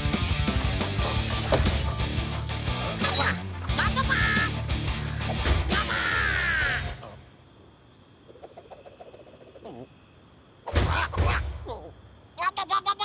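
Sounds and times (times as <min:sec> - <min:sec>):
background music: 0:00.0 - 0:07.0
cartoon creature squawking cry: 0:03.1 - 0:04.6, 0:05.7 - 0:07.2.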